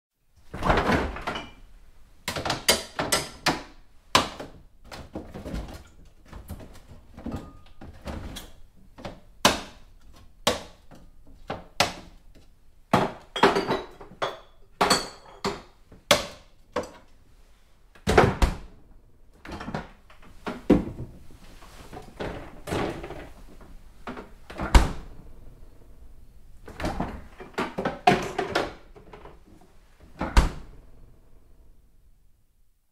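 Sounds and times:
rummaging through refrigerator: 0:19.4 - 0:25.0.

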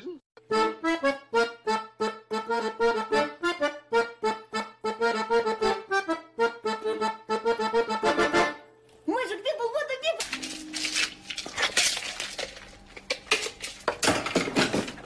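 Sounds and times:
accordion notes and chords: 0:00.4 - 0:08.8.

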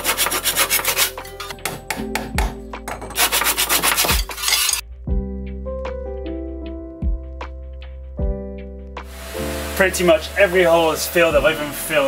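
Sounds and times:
hand saw rasping through wood: 0:00.0 - 0:04.8
background music: 0:00.0 - 0:12.0.

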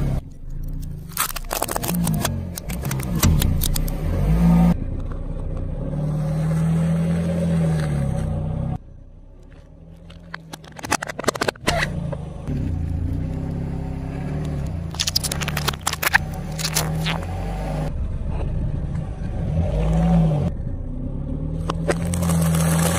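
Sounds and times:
car engine running: 0:00.0 - 0:22.9
sharp cracks: 0:14.5 - 0:17.3
tyre crunching brittle sheet: 0:14.9 - 0:17.3, 0:21.9 - 0:22.9.

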